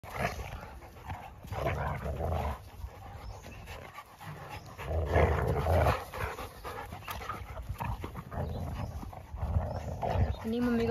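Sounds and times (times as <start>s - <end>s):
dogs panting and scuffling: 0.0s - 10.9s.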